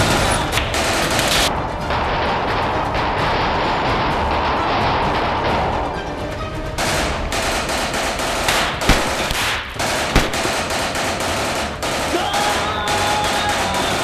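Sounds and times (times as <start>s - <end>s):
rapid handgun gunfire: 0.0s - 1.5s, 6.8s - 14.0s.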